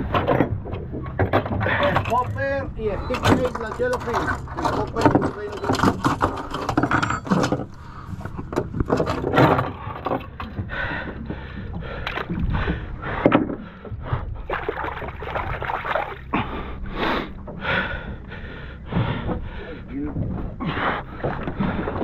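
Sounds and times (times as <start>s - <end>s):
water splashing against boat hull: 0.0s - 16.7s, 17.3s - 22.0s
low engine rumble: 0.0s - 22.0s.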